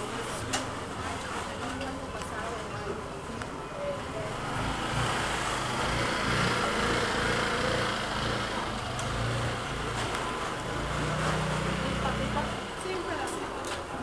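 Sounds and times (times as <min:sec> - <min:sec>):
small engine running: 0:04.5 - 0:09.8.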